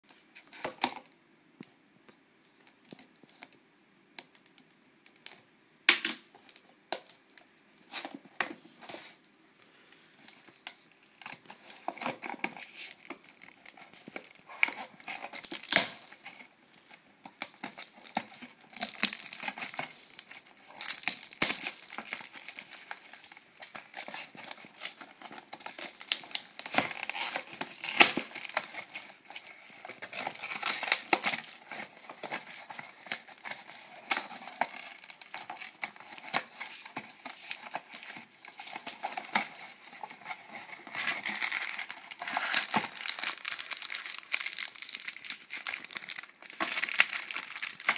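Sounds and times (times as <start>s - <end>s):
plastic bag crinkling: 10.0s - 47.9s.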